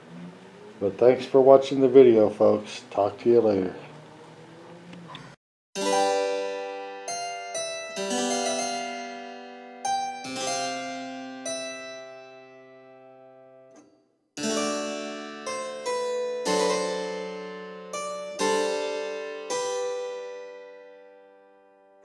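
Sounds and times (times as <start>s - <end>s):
keyboard chords ringing: 5.8s - 22.0s.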